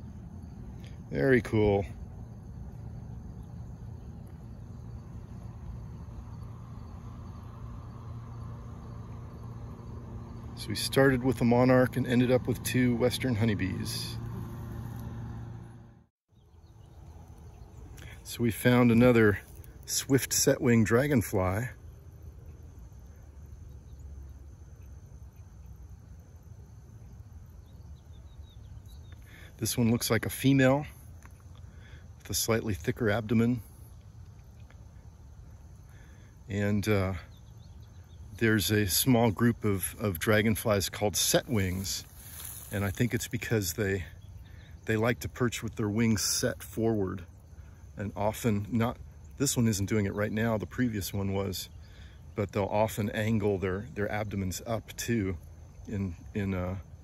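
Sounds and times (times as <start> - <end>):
low rumble: 0.0 - 16.1
low hum: 0.0 - 29.7
faint insect chorus: 0.0 - 57.0.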